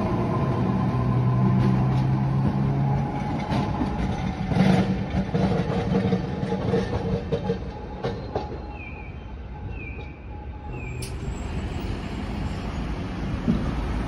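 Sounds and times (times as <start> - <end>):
train rattling knocks: 1.5 - 8.8, 13.1 - 14.0.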